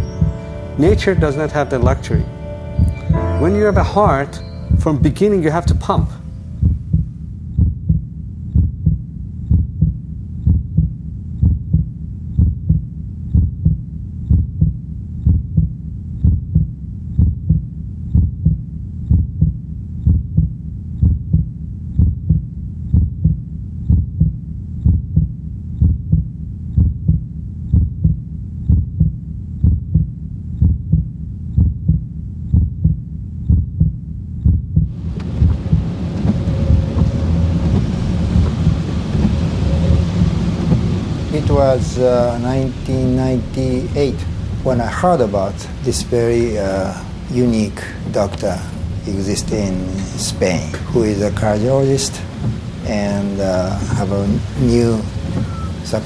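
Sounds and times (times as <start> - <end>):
heartbeat: 6.0 - 41.3, 52.2 - 52.8, 55.2 - 55.8.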